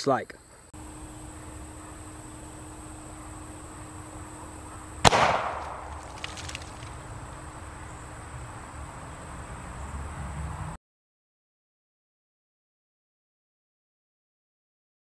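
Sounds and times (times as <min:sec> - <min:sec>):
plastic bottle bursting bang: 0:05.0 - 0:06.6.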